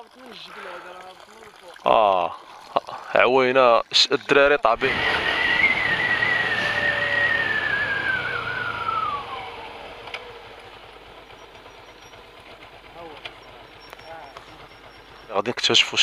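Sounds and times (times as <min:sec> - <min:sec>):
motorcycle engine whine: 0:04.8 - 0:15.7.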